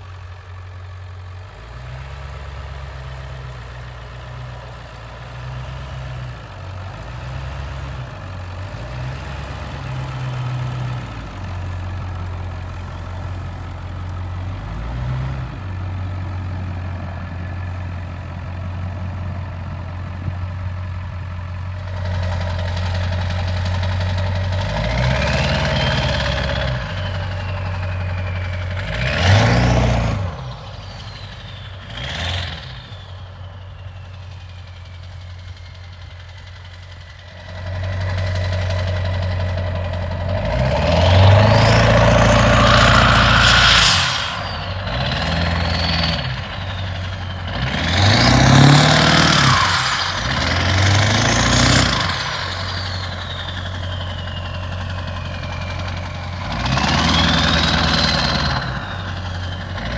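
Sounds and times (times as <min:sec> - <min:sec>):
diesel engine idling and revving: 0:00.0 - 0:59.9
turbo whistle: 0:25.1 - 0:36.4, 0:39.0 - 0:59.9.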